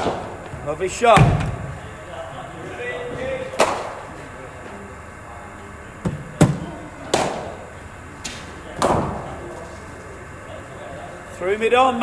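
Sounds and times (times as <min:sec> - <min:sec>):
cricket ball pitching: 0:03.5 - 0:04.0, 0:06.0 - 0:07.6
bat striking cricket ball: 0:03.6 - 0:04.0.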